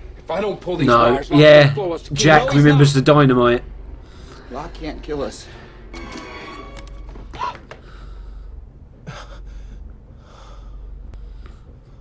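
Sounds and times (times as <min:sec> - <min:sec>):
faint breaths: 0:03.9 - 0:04.8, 0:07.7 - 0:12.0.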